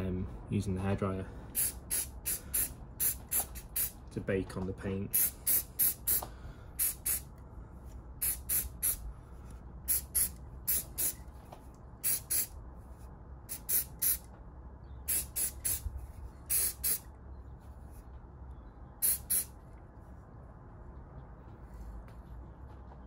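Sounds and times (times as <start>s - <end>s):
aerosol spray puffs: 1.6s - 4.0s, 5.1s - 7.3s, 8.2s - 9.0s, 9.9s - 11.2s, 12.0s - 12.6s, 13.5s - 14.3s, 15.1s - 15.8s, 16.5s - 17.0s, 19.0s - 19.5s.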